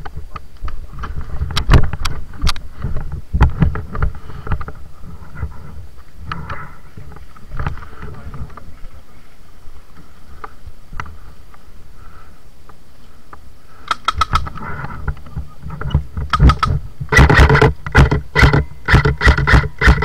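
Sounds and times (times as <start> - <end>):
microphone handling noise: 0.0 - 9.0, 13.8 - 20.0
wind rumble: 0.0 - 19.8
airsoft gun firing bursts: 13.9 - 14.5, 16.3 - 20.0.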